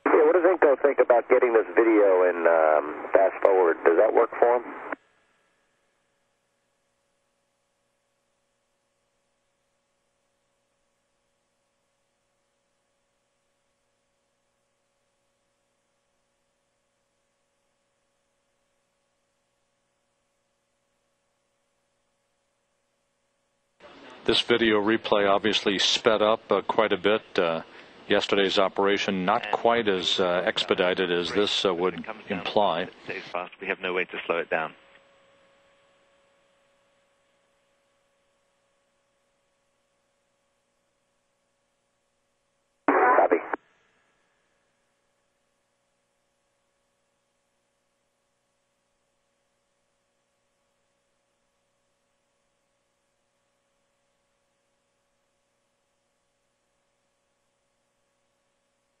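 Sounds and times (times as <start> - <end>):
faint radio hum: 0.0 - 5.0, 23.8 - 37.8, 42.9 - 43.7
radio noise burst: 0.0 - 5.0, 42.9 - 43.6
thin steady hum tone: 0.0 - 59.0.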